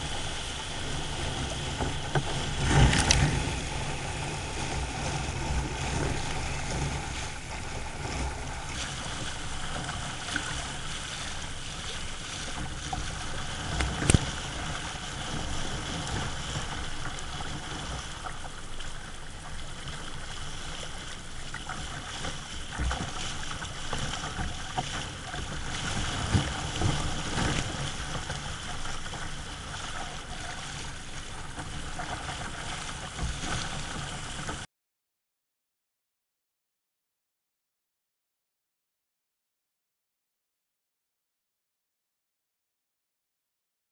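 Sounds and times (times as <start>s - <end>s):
water rushing along kayak hull: 0.0s - 34.7s.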